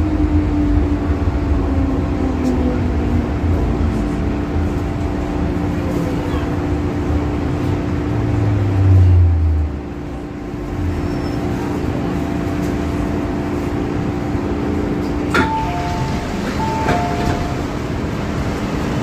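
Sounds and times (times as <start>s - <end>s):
train braking: 15.2s - 17.9s
door chime beeps: 15.4s - 17.6s.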